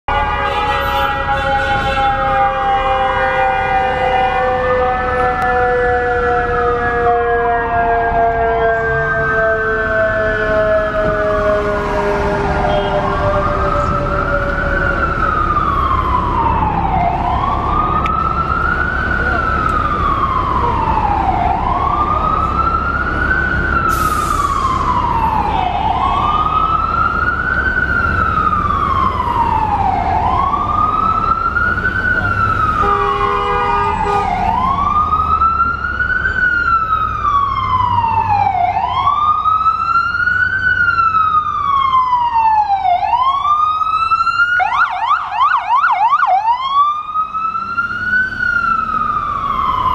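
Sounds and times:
emergency vehicle siren wailing: 0:00.0 - 0:49.9
vehicle horn: 0:00.1 - 0:04.6, 0:12.5 - 0:13.2, 0:32.8 - 0:34.4
city traffic rumble: 0:00.1 - 0:49.9.

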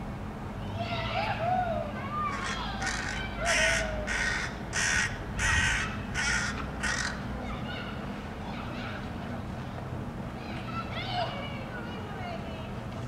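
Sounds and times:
crow cawing harshly: 0:02.2 - 0:07.3.

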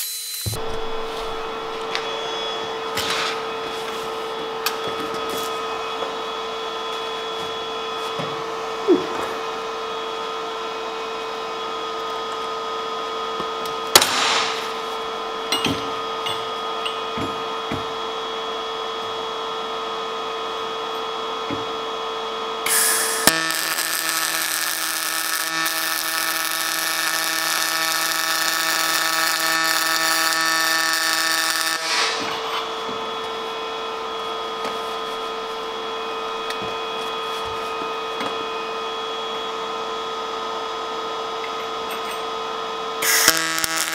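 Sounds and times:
welding arc buzzing: 0:00.0 - 0:12.5, 0:13.4 - 0:17.5, 0:22.6 - 0:36.4, 0:43.0 - 0:43.9.

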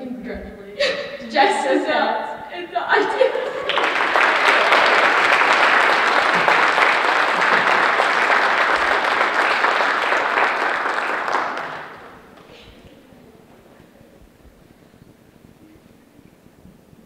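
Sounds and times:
audience applauding: 0:03.1 - 0:13.7.

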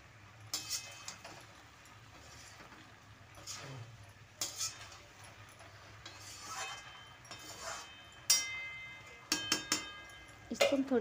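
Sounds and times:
metal spatula scraping in pan: 0:00.4 - 0:11.0
sharp metallic clang: 0:06.5 - 0:10.9.

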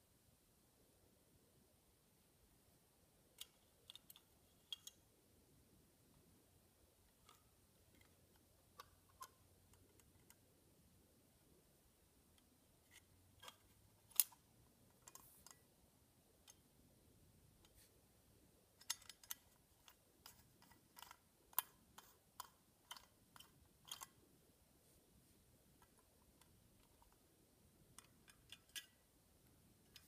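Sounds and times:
toy train clicking when handled: 0:03.4 - 0:05.0, 0:12.9 - 0:15.6, 0:18.8 - 0:24.2.

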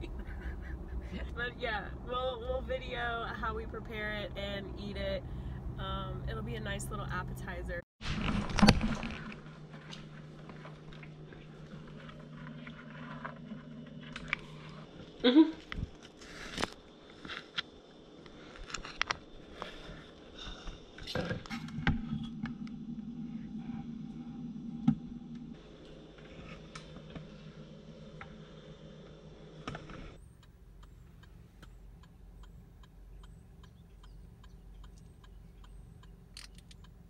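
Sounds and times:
low hum: 0:00.0 - 0:37.0
turn signal clicking: 0:29.7 - 0:37.0.

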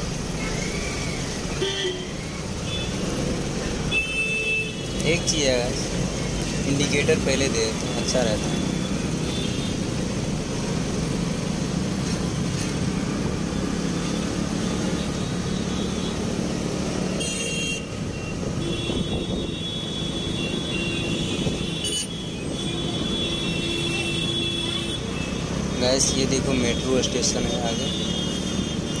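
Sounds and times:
road and traffic noise: 0:00.0 - 0:29.0.

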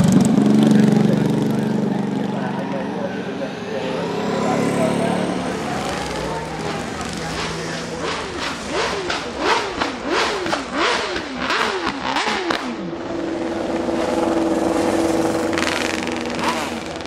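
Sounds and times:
motorcycle engine revving: 0:00.0 - 0:17.0
exhaust pops: 0:05.8 - 0:12.8.

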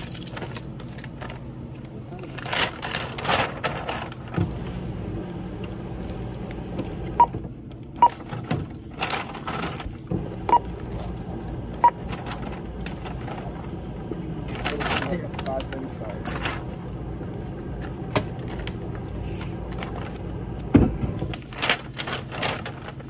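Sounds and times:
paper bag rustling: 0:00.0 - 0:04.8, 0:08.1 - 0:17.4, 0:21.1 - 0:23.0.

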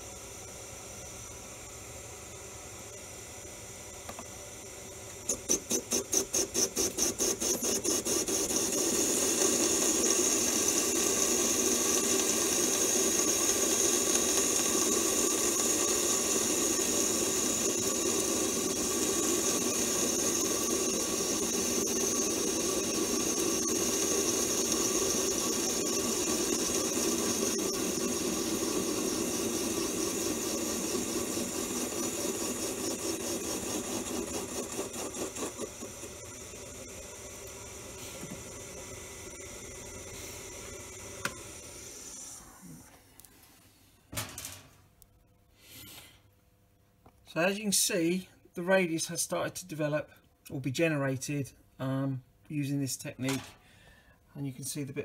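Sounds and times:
lathe tool cutting metal bar: 0:05.3 - 0:42.1.

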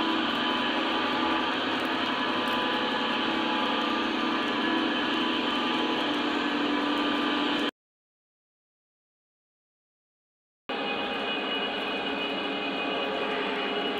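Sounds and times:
model train whirring on track: 0:00.0 - 0:07.7, 0:10.7 - 0:13.9.

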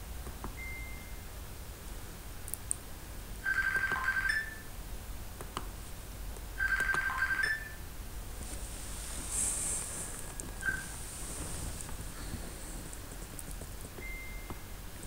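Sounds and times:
electronic ringtone: 0:03.4 - 0:04.6, 0:06.6 - 0:07.8.

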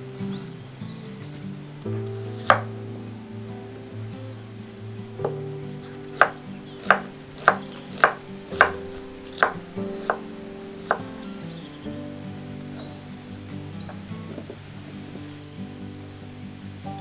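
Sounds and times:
knife chopping on wooden board: 0:02.4 - 0:02.7, 0:06.2 - 0:08.8, 0:09.4 - 0:10.2.

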